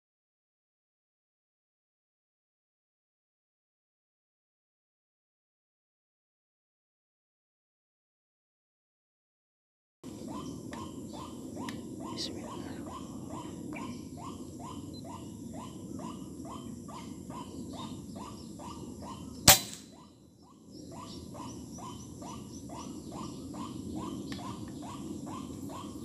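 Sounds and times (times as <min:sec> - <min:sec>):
waterhens calling: 0:10.2 - 0:26.0
air rifle shot: 0:19.5 - 0:20.0.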